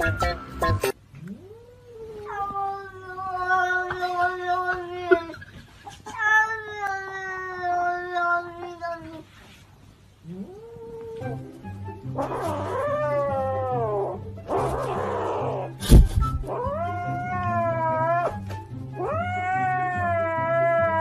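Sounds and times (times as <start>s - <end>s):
cat meowing: 1.2s - 5.4s, 6.0s - 9.2s, 10.2s - 11.5s, 12.2s - 18.4s, 19.0s - 21.0s
sharp thump: 15.8s - 16.5s
background music with low beat: 15.8s - 17.3s.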